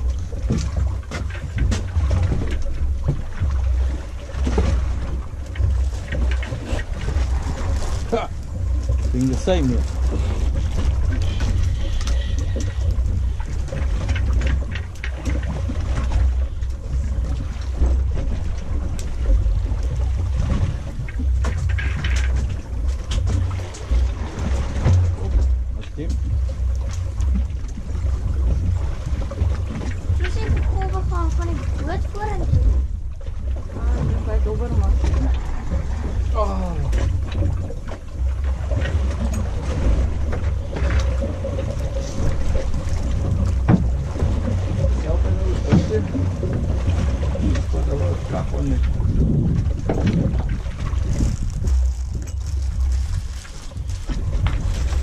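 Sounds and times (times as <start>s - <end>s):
boat engine rumbling: 0.0s - 55.0s
water slapping against hull: 0.0s - 55.0s
wind buffeting microphone: 0.0s - 55.0s
wind on microphone: 38.7s - 55.0s.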